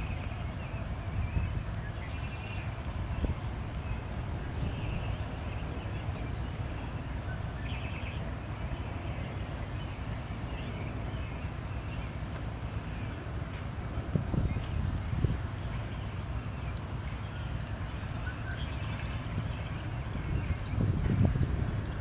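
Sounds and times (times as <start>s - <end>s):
low outdoor rumble: 0.0s - 22.0s
bird chirps: 14.5s - 21.3s.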